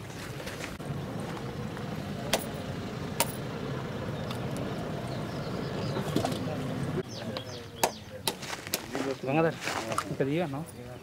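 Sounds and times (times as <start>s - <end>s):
low motor hum: 0.1s - 7.6s.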